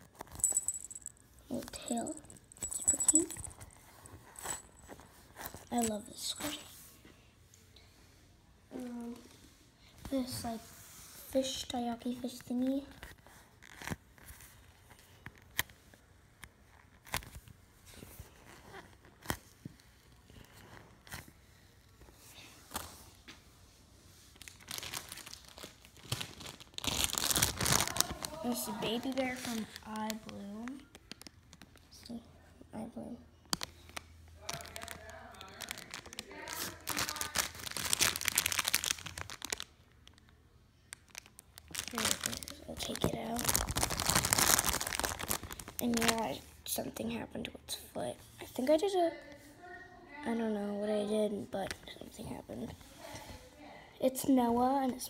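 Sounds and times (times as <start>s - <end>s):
plastic packaging crinkling: 0.0s - 6.7s, 24.4s - 31.8s, 33.5s - 46.4s.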